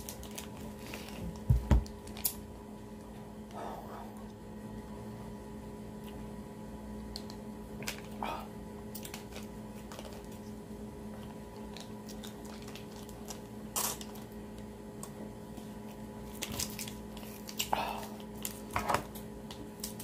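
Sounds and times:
steady low hum: 0:00.0 - 0:20.0
plastic sleeve crinkling: 0:11.7 - 0:14.3, 0:16.2 - 0:17.7.

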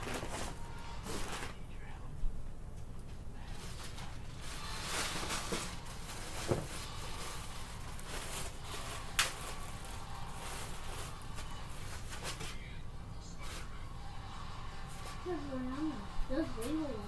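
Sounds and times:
clothes rustling: 0:00.0 - 0:01.6.

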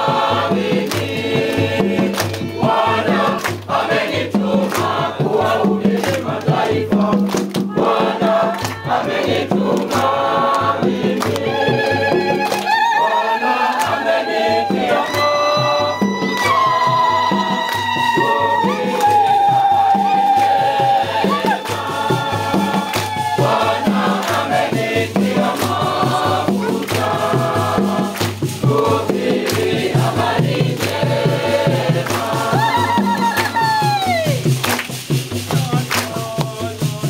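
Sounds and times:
congregation singing a hymn: 0:00.0 - 0:33.5
hand clapping: 0:00.2 - 0:12.8, 0:13.7 - 0:14.2, 0:14.9 - 0:37.0
steady low beat: 0:18.2 - 0:33.1.

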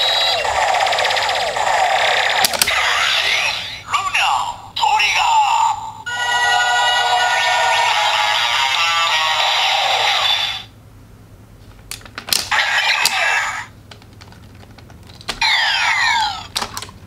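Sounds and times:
toy belt electronic sound effects: 0:00.0 - 0:03.9, 0:06.1 - 0:10.7, 0:12.5 - 0:13.7, 0:15.4 - 0:16.5.

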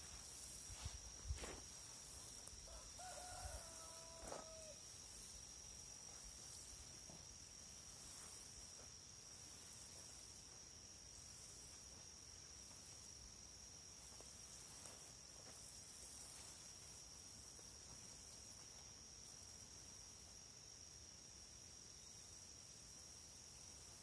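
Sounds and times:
faint rooster crowing: 0:02.5 - 0:05.0.

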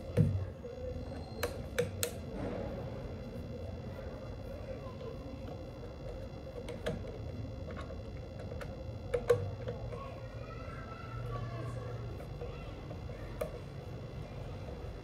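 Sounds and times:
screwdriver clicking on plastic: 0:01.2 - 0:02.2, 0:06.0 - 0:10.1.

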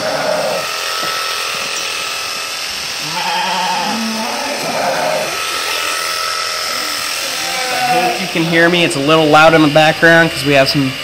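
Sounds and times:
electric shears buzzing: 0:00.0 - 0:11.0
sheep bleating: 0:03.0 - 0:06.0, 0:06.7 - 0:08.4.

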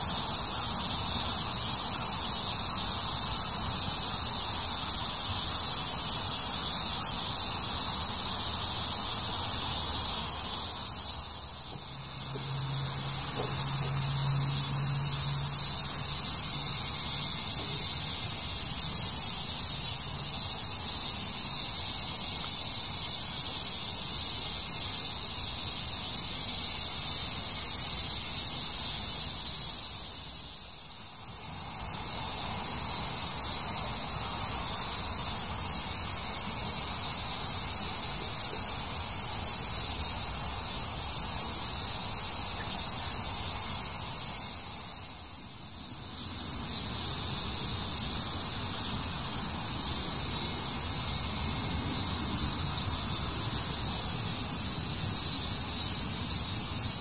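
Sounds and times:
cicadas chorus: 0:00.0 - 0:57.0.

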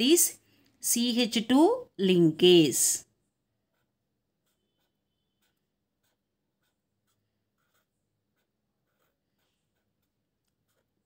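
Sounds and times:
marker scratching on paper: 0:02.6 - 0:11.0.

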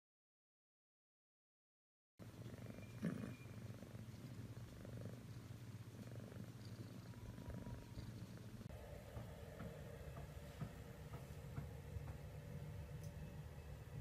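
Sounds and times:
cat purring: 0:02.2 - 0:14.0
soft knock: 0:09.1 - 0:12.3.

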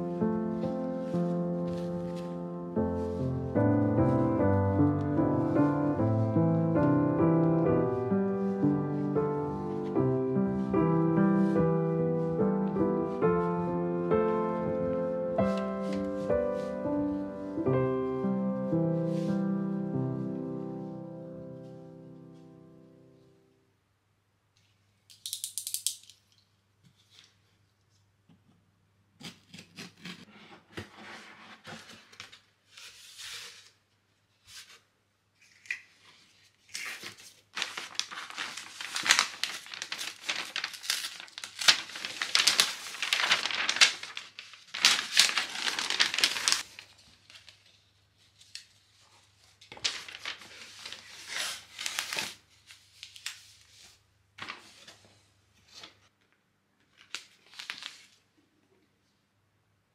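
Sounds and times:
paper tearing and crinkling: 0:29.2 - 0:33.8, 0:35.4 - 0:47.8, 0:49.5 - 0:53.8, 0:57.0 - 0:58.2.

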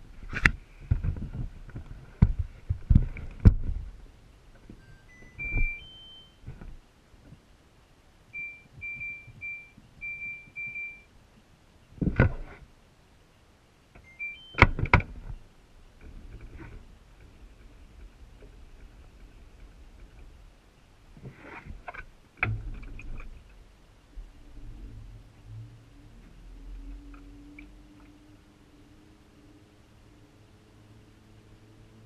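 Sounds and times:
washing machine panel beeping: 0:04.8 - 0:06.4, 0:08.4 - 0:11.1, 0:14.0 - 0:14.8.

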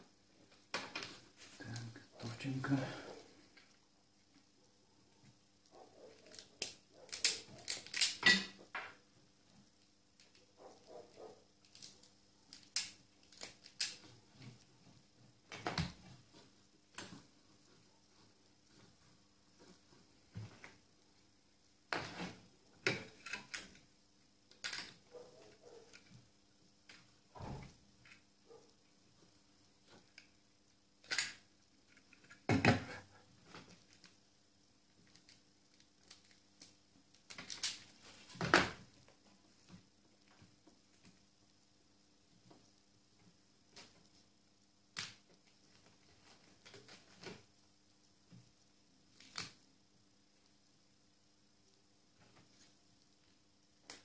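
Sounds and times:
wire strippers and pliers clicking: 0:06.2 - 0:08.6.

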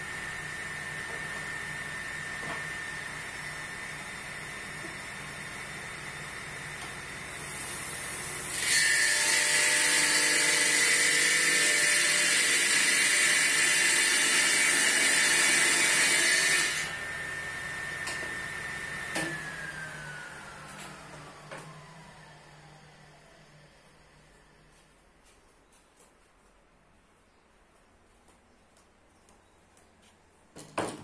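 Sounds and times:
table saw running: 0:00.0 - 0:24.6
table saw cutting wood: 0:00.1 - 0:05.0, 0:06.7 - 0:24.4.

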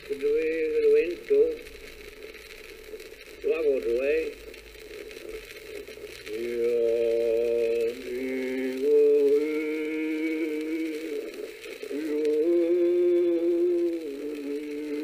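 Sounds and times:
man singing unaccompanied: 0:06.3 - 0:15.0.

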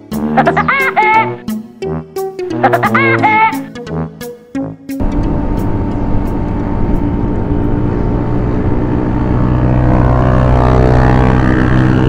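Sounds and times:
motorcycle engines running: 0:05.0 - 0:12.0.

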